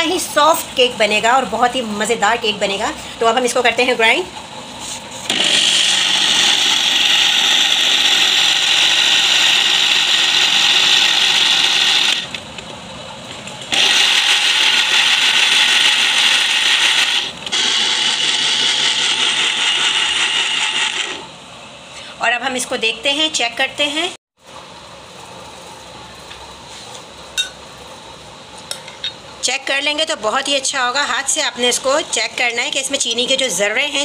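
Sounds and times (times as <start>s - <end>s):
blender motor running: 5.3s - 12.4s, 13.7s - 21.4s.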